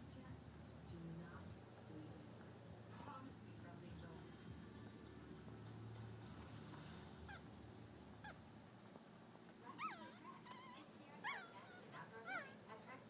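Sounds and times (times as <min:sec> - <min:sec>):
puppies squeaking: 0:07.2 - 0:08.5, 0:09.6 - 0:12.6.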